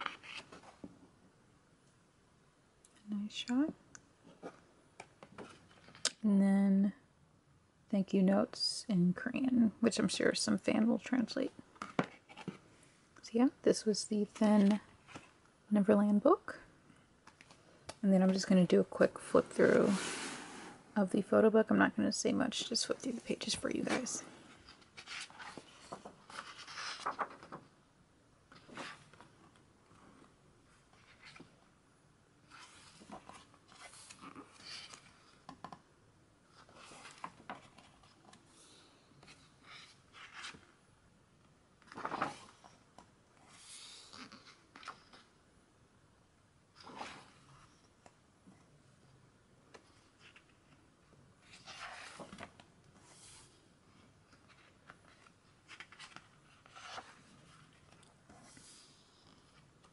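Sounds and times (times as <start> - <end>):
book pages rustling: 0.0 - 0.9, 23.8 - 27.7, 28.5 - 31.6, 32.4 - 35.7, 36.5 - 38.6, 39.2 - 40.8, 41.8 - 42.8, 46.8 - 47.8, 49.7 - 58.8.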